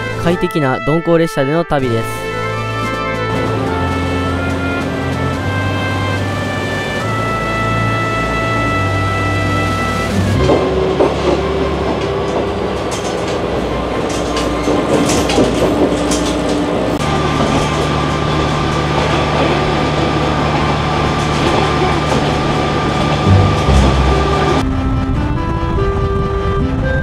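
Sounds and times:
diesel engine droning: 2.4 - 26.8
train wheels clicking over rail joints: 10.1 - 24.6.

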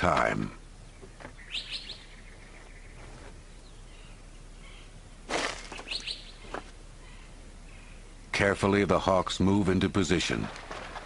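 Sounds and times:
faint outdoor background: 0.0 - 11.0
rustle of wings: 5.3 - 6.8, 10.3 - 11.0.

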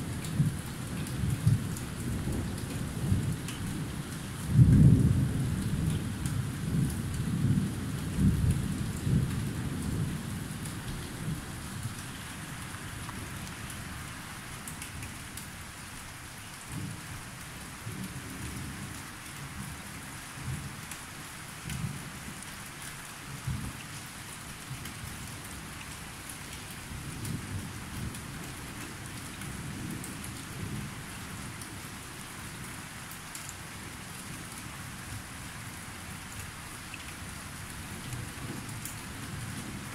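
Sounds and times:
rain hissing: 6.6 - 17.0.

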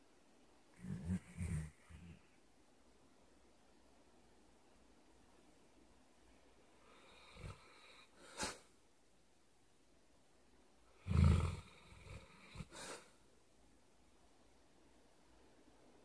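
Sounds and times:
dog snorting and snuffling: 0.8 - 2.2
dog snoring: 0.8 - 2.3, 6.9 - 8.6, 10.9 - 13.0.

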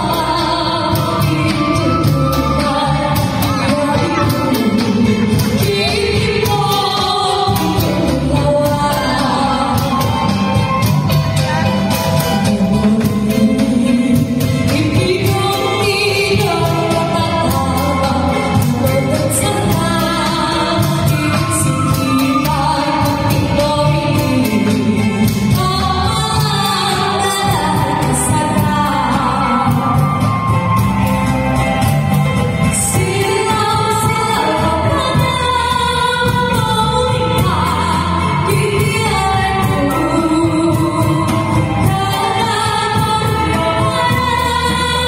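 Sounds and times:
person singing: 0.0 - 30.8
live band with keyboard: 0.0 - 45.0.

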